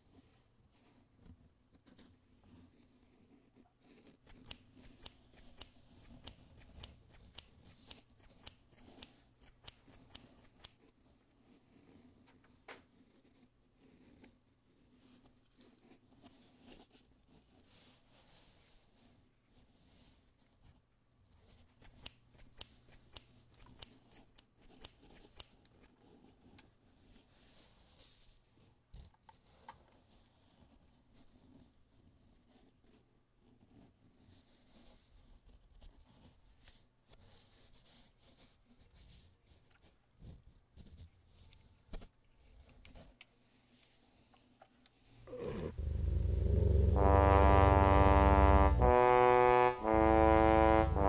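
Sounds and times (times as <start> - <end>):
scissors snipping cloth: 4.2 - 10.8, 21.6 - 25.9.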